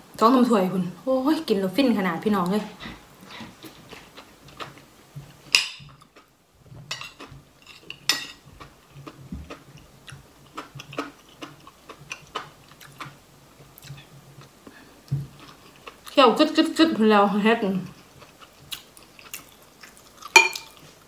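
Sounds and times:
spoon clinking on ceramic bowl: 20.4s - 20.8s.

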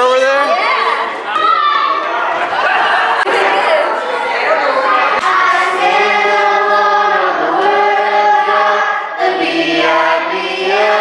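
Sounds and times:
children and adults singing: 3.2s - 11.0s.

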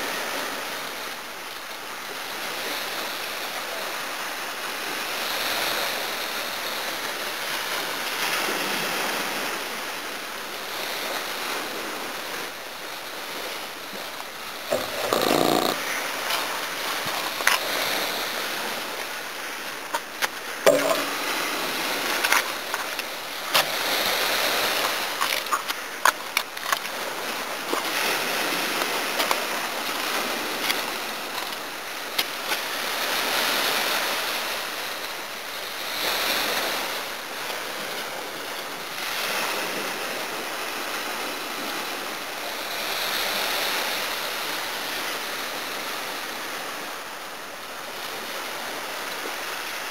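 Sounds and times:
small waves breaking on shore: 0.0s - 49.9s.

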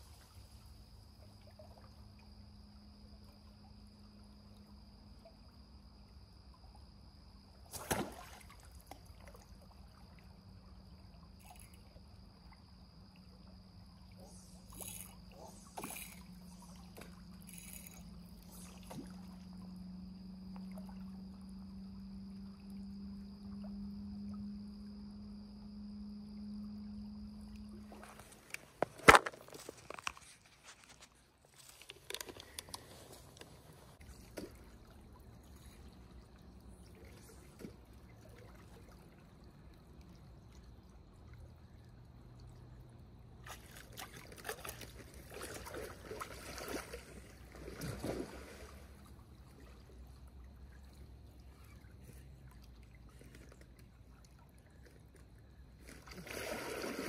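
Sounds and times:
river water trickling: 0.0s - 57.0s
water splashes: 7.6s - 12.6s, 13.3s - 19.8s, 27.7s - 42.5s, 43.3s - 57.0s.

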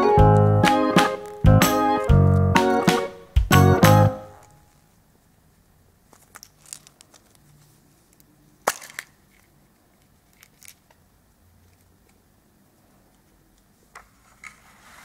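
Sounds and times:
plastic clicks: 8.1s - 11.0s
plastic capsule snapping open: 8.6s - 9.5s.

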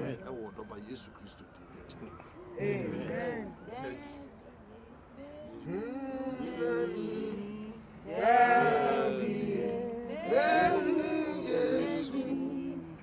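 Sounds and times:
group singing unaccompanied: 2.4s - 4.4s, 5.1s - 13.0s.

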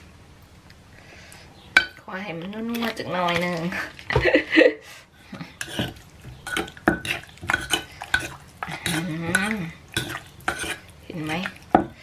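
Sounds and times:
metal spoon scraping bowl: 5.4s - 12.0s
pestle pounding in mortar: 5.7s - 10.8s.

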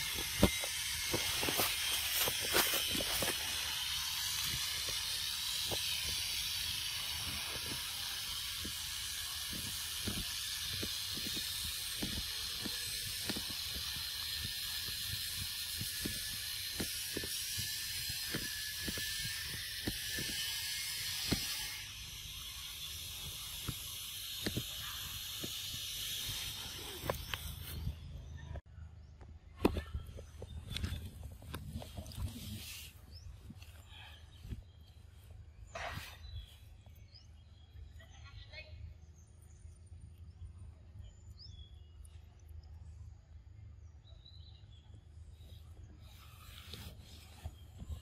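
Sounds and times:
high-pitched forest ambience hiss: 0.0s - 28.2s.

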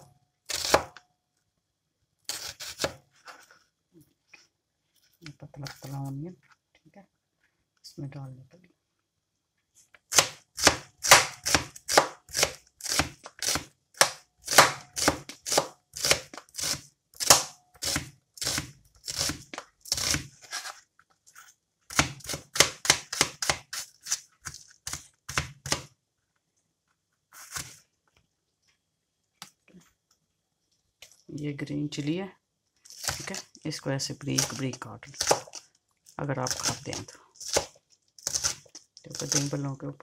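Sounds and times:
knife slicing onion on board: 0.5s - 1.0s, 2.3s - 3.0s, 10.1s - 20.7s, 21.9s - 25.9s, 35.2s - 35.6s, 36.4s - 39.5s.

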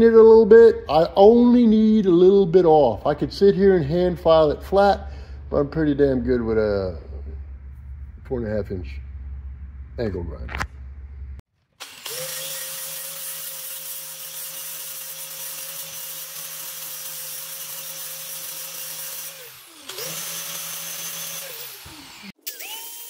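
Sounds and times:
angle grinder grinding steel: 11.8s - 23.0s.

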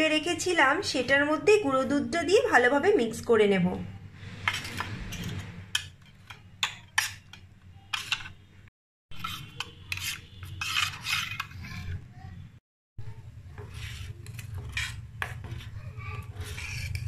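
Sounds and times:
spoon clinking and scraping bowl: 4.3s - 8.5s, 9.1s - 12.0s, 13.5s - 17.0s.

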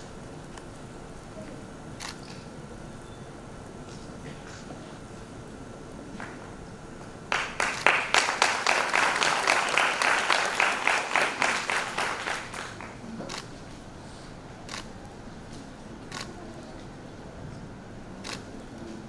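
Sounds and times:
single claps: 7.3s - 13.0s
crowd applauding: 7.3s - 13.2s.

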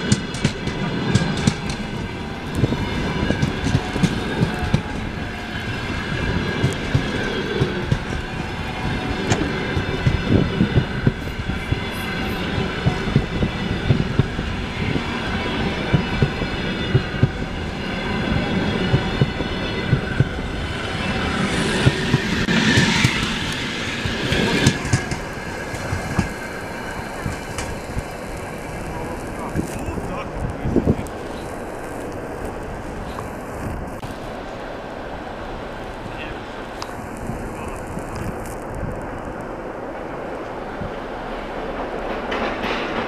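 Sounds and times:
train wheels clattering over rail joints: 0.0s - 11.8s, 21.1s - 34.1s, 41.6s - 43.0s
train rushing past: 0.0s - 43.0s.

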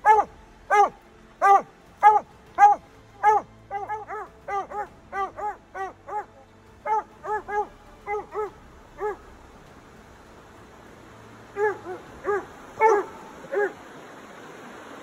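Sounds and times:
hound barking: 0.0s - 9.3s, 11.6s - 13.8s.

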